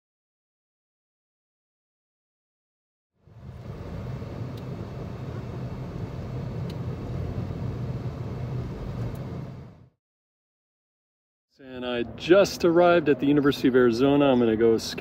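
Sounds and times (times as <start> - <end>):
car engine and road rumble: 3.2 - 9.9.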